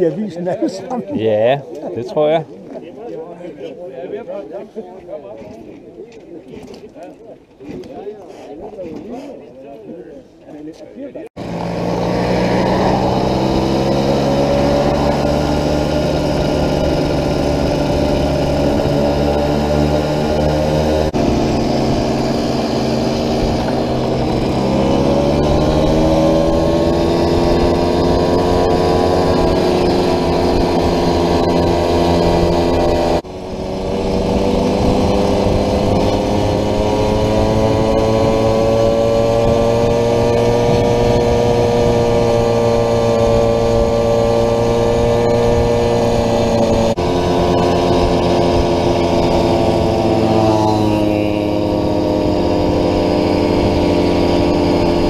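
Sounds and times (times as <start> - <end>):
moped engine running: 11.4 - 55.0.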